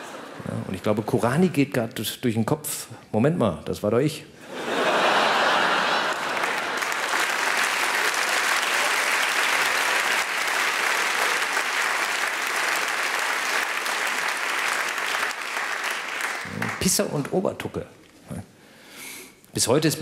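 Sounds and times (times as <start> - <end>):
audience applauding: 4.9 - 17.4.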